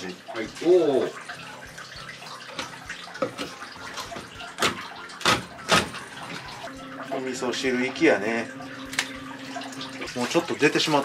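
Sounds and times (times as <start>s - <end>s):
tap running: 0.3s - 11.0s.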